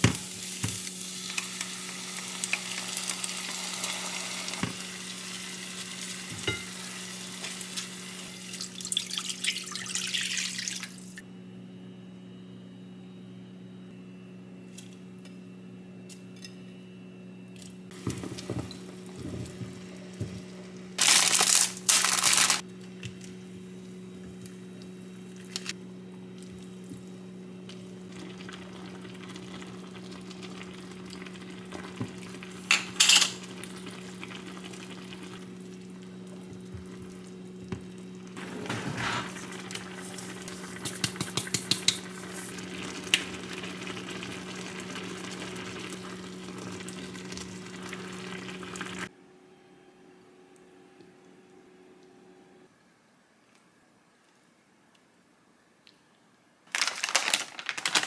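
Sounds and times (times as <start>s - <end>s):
steady low hum: 11.0s - 55.7s
sauce simmering in pan: 39.4s - 49.1s.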